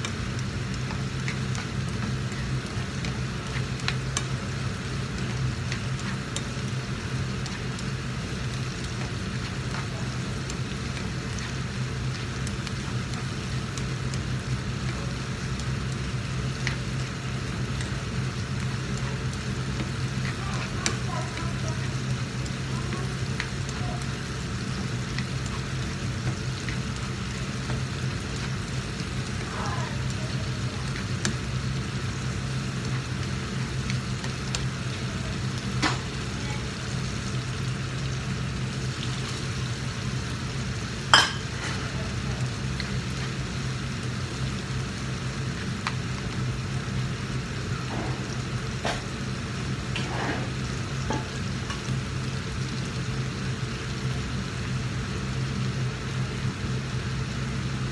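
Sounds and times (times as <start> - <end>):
steady low hum: 0.0 - 49.9
vegetables sizzling in a frying pan: 0.0 - 57.9
utensil clicking on a pan: 18.6 - 24.4.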